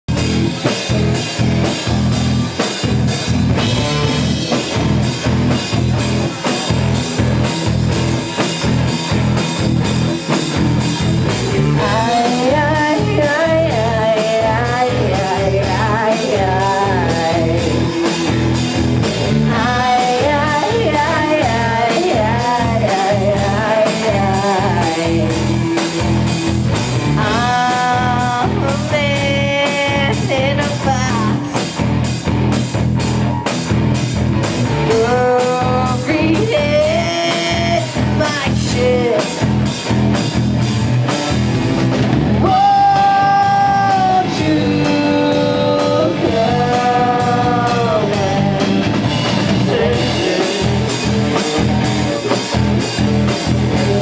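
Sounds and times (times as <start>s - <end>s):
rock band playing: 0.0s - 54.0s
person singing: 11.6s - 18.6s, 19.3s - 26.0s, 27.2s - 31.7s, 34.8s - 39.5s, 42.4s - 52.6s, 53.3s - 54.0s.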